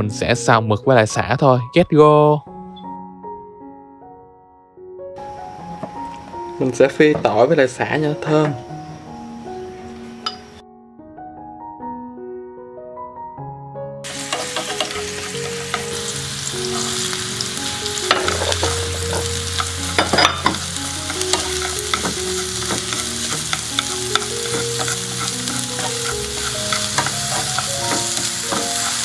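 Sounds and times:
light piano background music: 0.0s - 29.0s
chopsticks tapping and scraping pan: 14.1s - 29.0s
garlic sizzling in hot oil: 14.1s - 29.0s.

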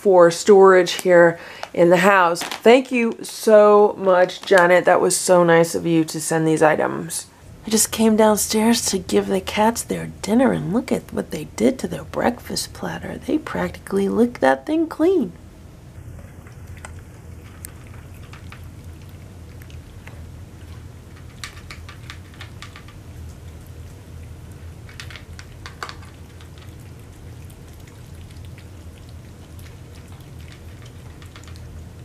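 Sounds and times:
low steady hum: 0.0s - 32.0s
cats chewing and licking food: 0.8s - 5.0s, 15.7s - 32.0s.

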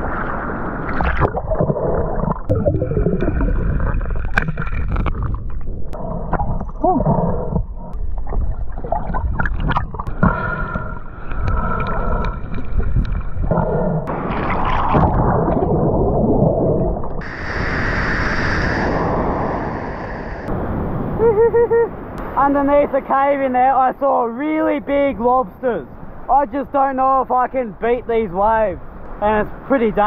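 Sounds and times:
underwater gurgling and sloshing: 0.0s - 21.3s
underwater knocks and clicks: 1.1s - 10.4s, 11.3s - 13.6s
breaking surf hiss: 17.2s - 21.0s.

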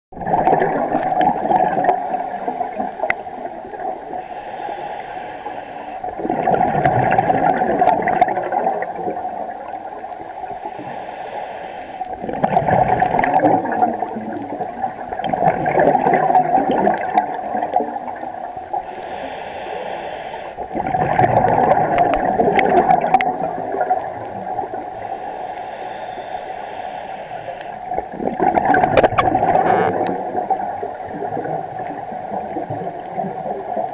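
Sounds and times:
gurgle of exhaled bubbles: 0.2s - 4.2s, 6.0s - 10.6s, 12.1s - 19.3s, 20.3s - 25.2s, 27.4s - 33.9s
regulator inhalation hiss: 4.1s - 6.1s, 10.4s - 12.2s, 18.7s - 20.8s, 24.9s - 27.9s.

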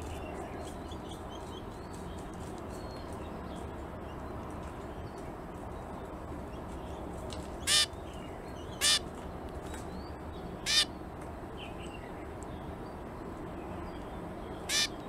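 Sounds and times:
finch calls: 7.6s - 8.0s, 8.6s - 9.1s, 10.6s - 11.0s, 14.6s - 15.0s.

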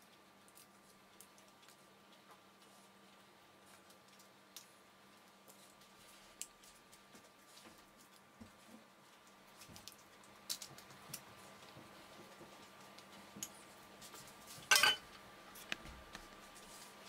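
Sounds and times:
glass bowl clinking: 14.7s - 15.0s.

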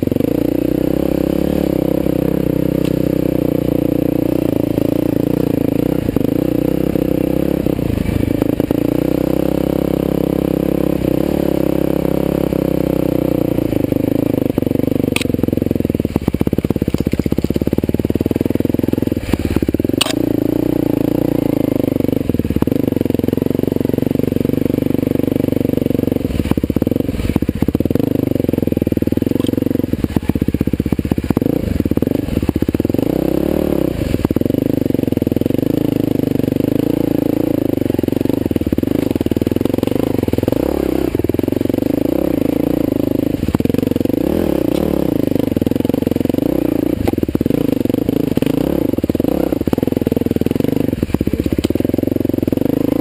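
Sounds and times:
dirt bike engine revving: 0.0s - 53.0s
knocks and clatter on rocks: 16.8s - 17.7s.

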